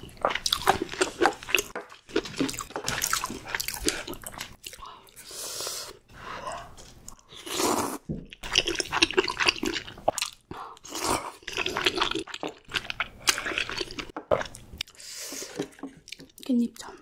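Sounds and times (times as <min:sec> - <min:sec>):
chewing food with wet crunches: 0:00.0 - 0:04.9, 0:08.2 - 0:15.0.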